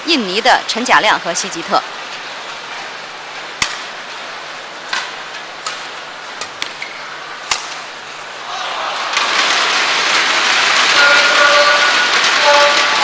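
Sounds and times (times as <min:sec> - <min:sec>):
crowd hiss: 0:01.8 - 0:13.0
rackets striking shuttlecock: 0:03.6 - 0:03.9, 0:04.9 - 0:07.9.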